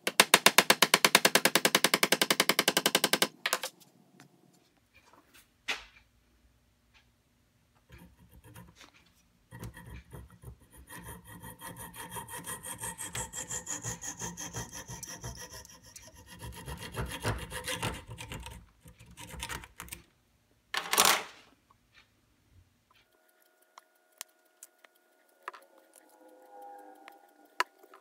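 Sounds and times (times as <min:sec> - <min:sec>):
hand saw cutting wood: 0:09.5 - 0:19.6.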